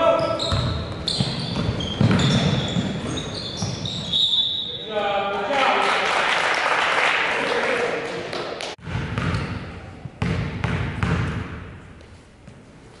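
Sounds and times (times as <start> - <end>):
basketball bouncing on gym floor: 0.2 - 4.2, 8.8 - 11.8.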